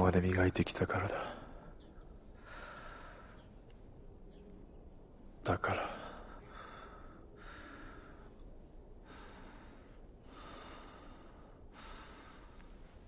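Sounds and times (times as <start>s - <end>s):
man breathing slowly: 1.1s - 3.6s, 5.7s - 13.0s.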